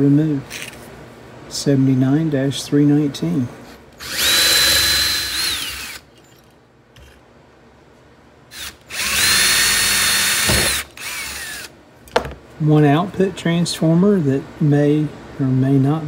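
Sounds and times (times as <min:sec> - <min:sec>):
cordless drill whining: 0:04.0 - 0:06.0, 0:08.5 - 0:11.7.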